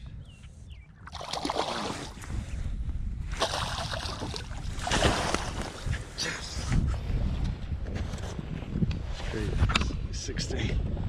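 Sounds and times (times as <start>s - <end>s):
fish splashing at water surface: 1.1s - 2.2s, 3.4s - 5.8s.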